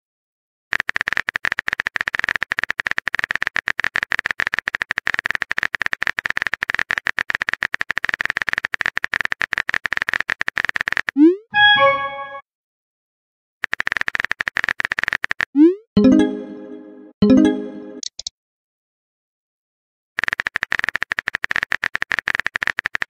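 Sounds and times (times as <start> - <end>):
simulated keyboard typing clicks: 0.7 - 11.3, 13.6 - 16.4, 17.3 - 18.3, 20.2 - 23.0.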